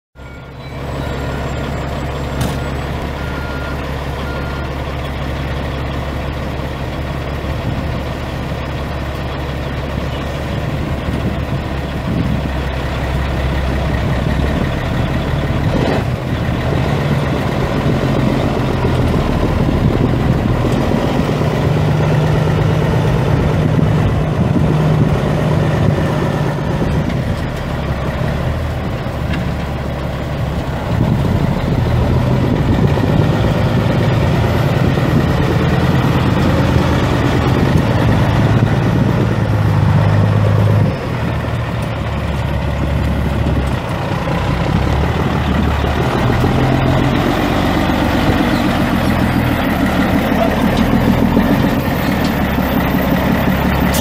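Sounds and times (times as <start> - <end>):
diesel truck idling: 0.2 - 54.0.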